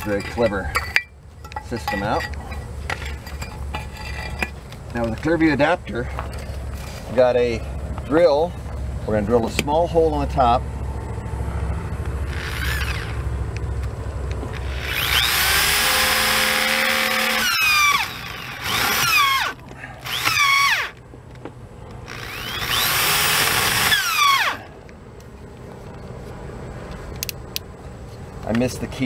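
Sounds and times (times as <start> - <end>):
low steady hum: 0.0 - 29.0
electric drill whining: 12.2 - 13.3, 14.5 - 21.0, 22.1 - 24.7.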